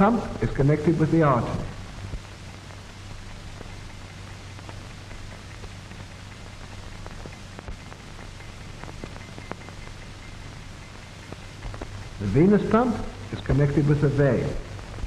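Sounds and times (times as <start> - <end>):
film soundtrack hiss: 0.0 - 15.0
low hum: 0.0 - 15.0
clicks and crackles: 1.8 - 12.3.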